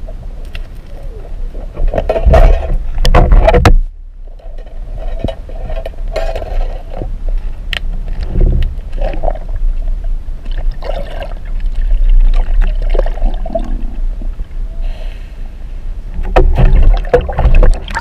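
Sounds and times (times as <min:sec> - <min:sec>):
sharp clicks and knocks: 0:01.8 - 0:08.9
underwater water rushing: 0:08.0 - 0:14.6, 0:16.1 - 0:18.0.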